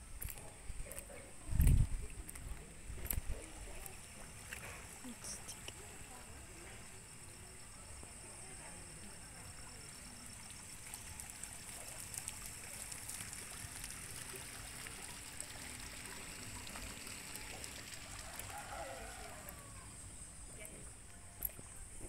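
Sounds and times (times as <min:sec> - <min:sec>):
water trickling: 0:08.2 - 0:22.0.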